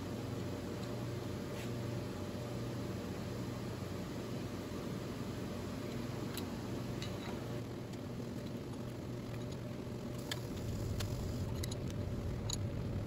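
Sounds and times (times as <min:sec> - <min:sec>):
low hum and hiss: 0:00.0 - 0:13.0
ratchet metallic clicks: 0:10.2 - 0:12.7.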